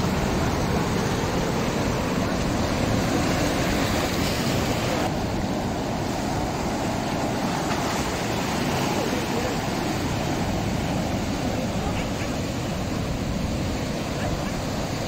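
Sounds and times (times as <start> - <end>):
surf washing over rocks: 0.0 - 15.0.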